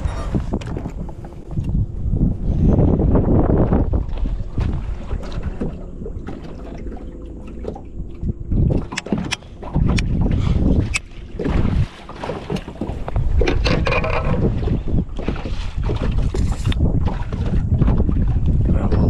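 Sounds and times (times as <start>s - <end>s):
wind buffeting microphone: 0.0s - 19.0s
sharp clicks and knocks: 8.7s - 10.1s.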